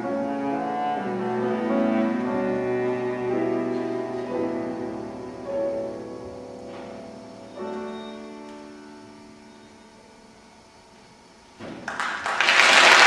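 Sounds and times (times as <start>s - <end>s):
chamber quartet playing: 0.0s - 9.2s.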